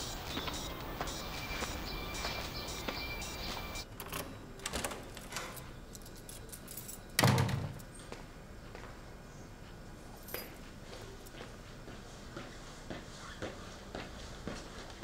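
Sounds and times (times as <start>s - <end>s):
keys jingling: 5.5s - 7.2s
door shutting: 7.2s - 7.8s.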